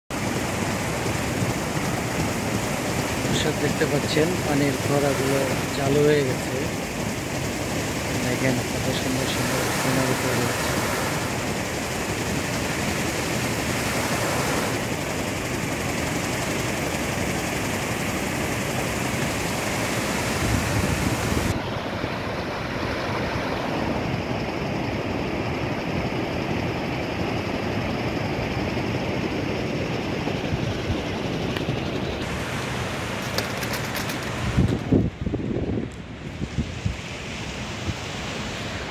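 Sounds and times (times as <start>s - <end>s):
fountain jets splashing into pool: 0.1s - 21.5s.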